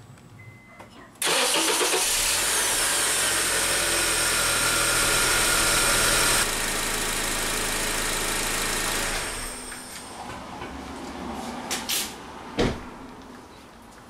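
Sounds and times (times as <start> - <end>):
car engine idling: 1.2 - 9.7
high engine whine: 1.6 - 10.6.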